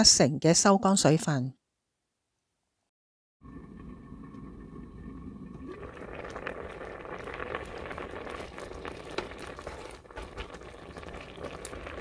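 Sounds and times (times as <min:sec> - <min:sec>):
rice bubbling and popping: 0:03.8 - 0:12.0
small crackles: 0:05.8 - 0:12.0.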